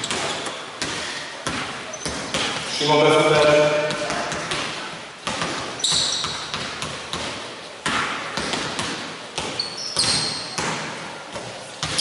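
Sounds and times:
basketballs bouncing on hardwood: 0.0s - 2.7s, 3.4s - 12.0s
sneaker squeaks: 0.0s - 2.8s, 5.6s - 7.2s, 8.8s - 12.0s.

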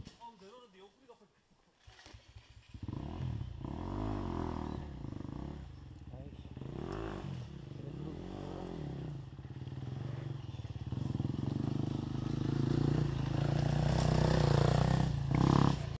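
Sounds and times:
dirt bike engine running: 2.2s - 16.0s.

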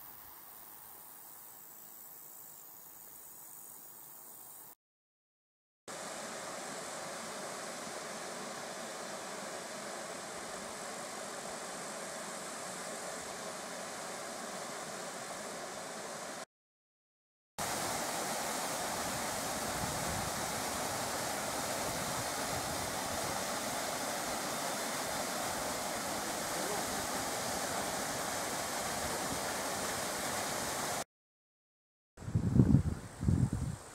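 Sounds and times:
waterfall rushing over rock: 17.6s - 31.0s.

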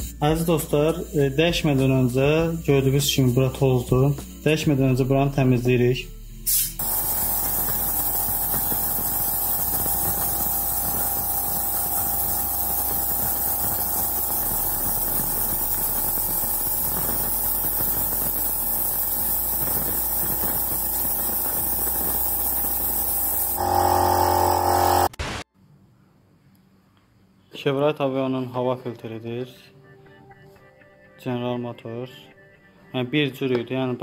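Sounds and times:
vacuum cleaner running: 6.8s - 25.2s.

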